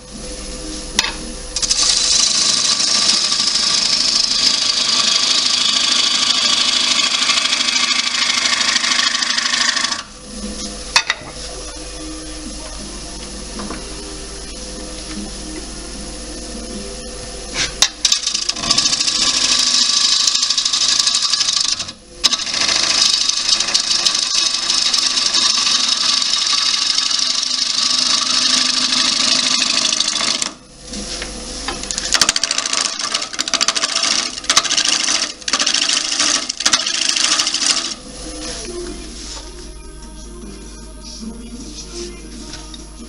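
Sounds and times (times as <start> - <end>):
wood lathe gouge cutting: 1.6 - 10.1, 18.0 - 30.6, 31.9 - 38.0.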